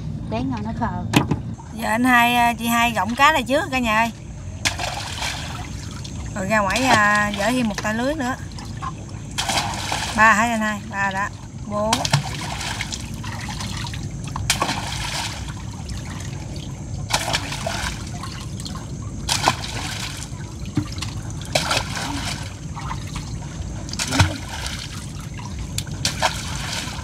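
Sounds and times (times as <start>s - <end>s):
water trickling off a net: 4.2s - 27.0s
short splash or knock: 9.4s - 10.2s, 11.9s - 13.8s, 14.5s - 15.5s, 19.3s - 23.2s, 24.0s - 24.9s.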